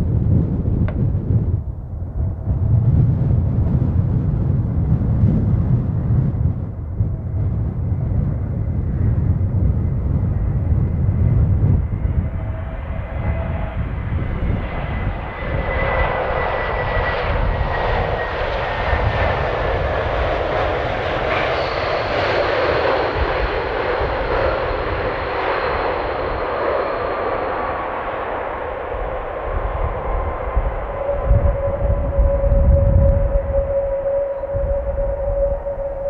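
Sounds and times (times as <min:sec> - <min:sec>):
jet engines rushing and whining: 0:00.0 - 0:36.0
low rumble of wind: 0:00.0 - 0:36.0
high steady tone: 0:30.6 - 0:36.0.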